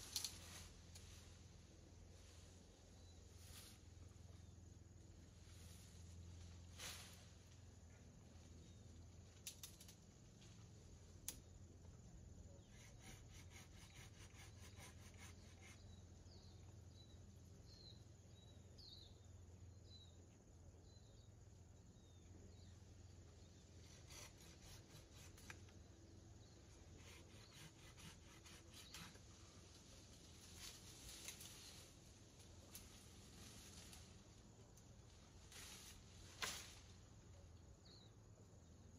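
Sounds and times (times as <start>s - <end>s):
steady low hum: 0.0s - 38.9s
small bird chirping: 12.4s - 29.3s, 37.6s - 38.9s.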